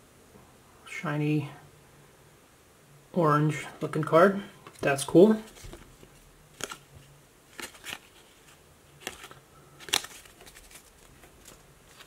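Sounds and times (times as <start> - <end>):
cards being flipped: 4.6 - 12.0.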